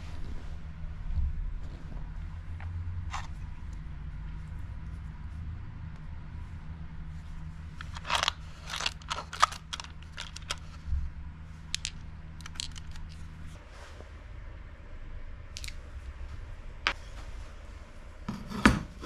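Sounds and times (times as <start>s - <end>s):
steady low hum: 0.0s - 19.0s
clicks crunches and scrapes: 7.8s - 10.8s.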